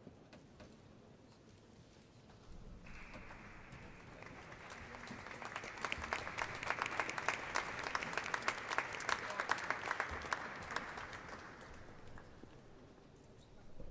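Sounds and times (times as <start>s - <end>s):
audience applauding: 2.9s - 12.5s.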